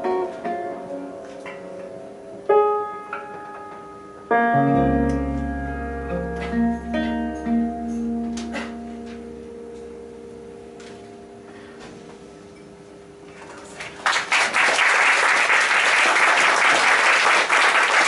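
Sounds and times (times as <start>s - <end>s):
piano and guitar chord ringing: 0.0s - 13.2s
audience applause: 13.8s - 18.0s.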